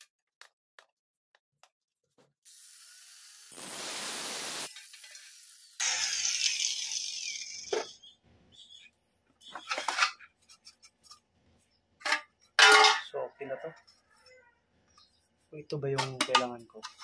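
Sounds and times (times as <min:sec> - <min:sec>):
angle grinder cutting metal fixture: 0:02.5 - 0:07.9.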